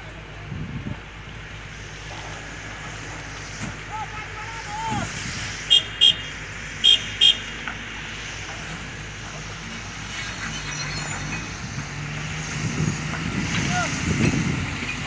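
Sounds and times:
diesel machinery running: 0.0s - 15.0s
vehicle horn beeping: 5.7s - 7.5s.

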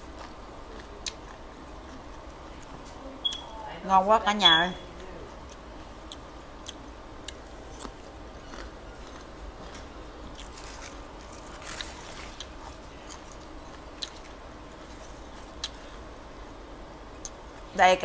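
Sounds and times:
mouth-close chewing: 5.4s - 14.2s
lettuce crunching and tearing: 6.6s - 16.0s
crisp rustle: 10.4s - 13.5s.

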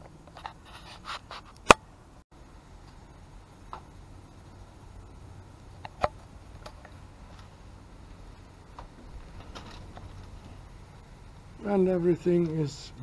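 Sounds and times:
low steady hum: 1.6s - 13.0s.

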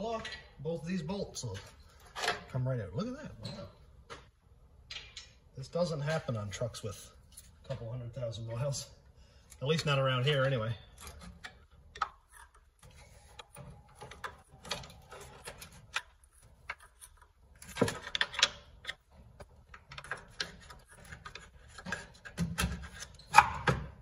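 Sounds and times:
metal clicks and knocks: 3.4s - 5.4s, 10.3s - 23.9s.

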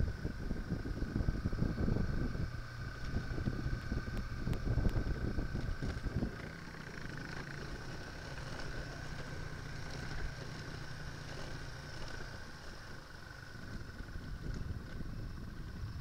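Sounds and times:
wind buffeting microphone: 0.0s - 6.8s, 13.4s - 16.0s
motorcycle engine running: 0.0s - 16.0s.

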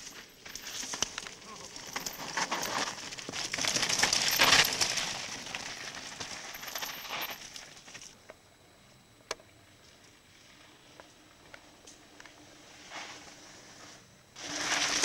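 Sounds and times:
bike rattling and clinking: 0.0s - 8.1s
tyres crunching over stones: 0.0s - 8.2s.

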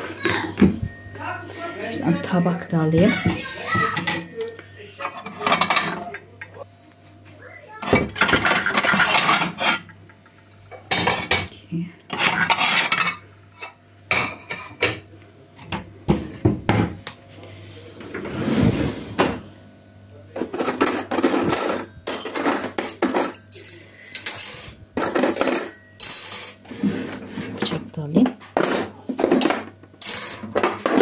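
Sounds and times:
ceramic plates clinking: 2.2s - 6.6s, 7.8s - 10.0s, 10.8s - 11.5s
metal cutlery rattling in drawer: 20.4s - 26.6s.

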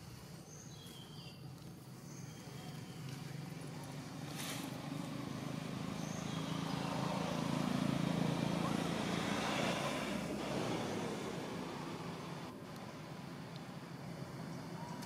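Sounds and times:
vehicle engine passing by: 2.8s - 14.8s.

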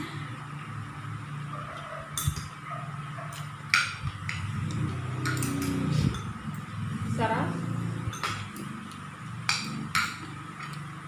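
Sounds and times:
cutlery clinking on plates: 1.7s - 2.6s, 3.4s - 6.6s, 8.0s - 8.8s, 9.4s - 10.8s.

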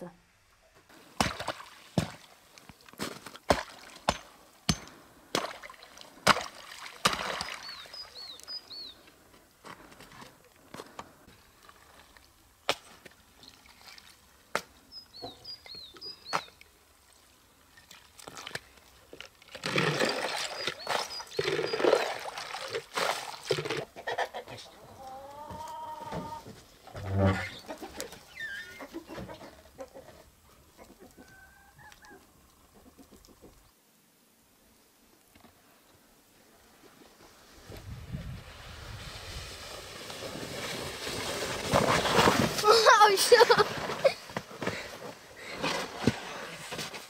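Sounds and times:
water splashing and pouring: 1.2s - 4.2s, 5.3s - 8.0s, 17.8s - 23.9s
small bird chirping: 7.4s - 9.0s, 14.9s - 16.6s.

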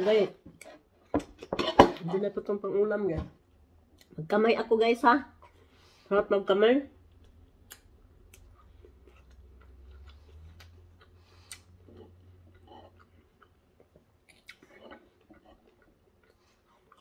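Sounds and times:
faint chewing: 7.0s - 17.0s.

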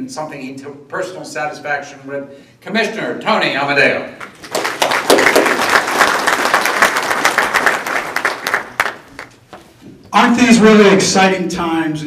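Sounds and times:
audience applauding: 4.2s - 9.4s.

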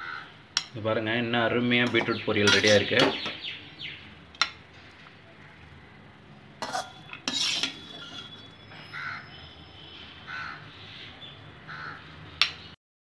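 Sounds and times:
spatula scraping metal pan: 1.8s - 3.1s, 6.6s - 8.6s
spatula clattering against bowl: 1.8s - 3.4s, 6.6s - 8.4s.

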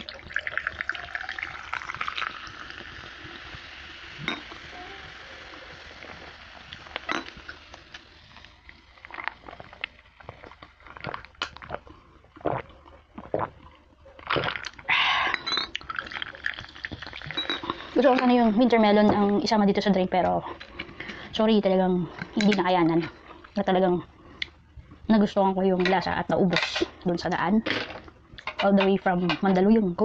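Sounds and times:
soda pouring into a glass: 0.0s - 9.4s, 15.8s - 18.0s
soda fizzing: 0.0s - 11.8s, 15.8s - 19.4s
glass clinks and knocks: 15.4s - 15.8s, 17.3s - 17.7s.

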